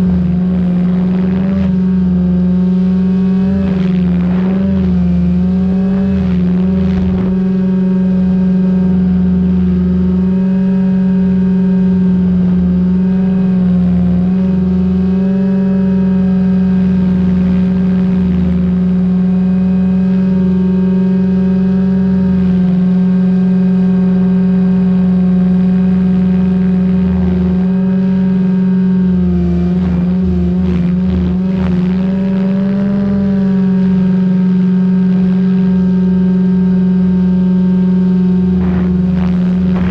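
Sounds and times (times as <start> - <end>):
low rumble: 0.0 - 10.4, 37.1 - 39.9
rc helicopter motor whine: 38.2 - 39.9.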